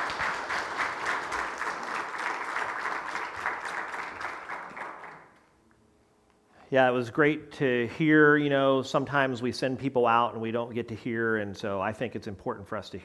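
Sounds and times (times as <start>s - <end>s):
congregation applauding: 0.0s - 5.4s.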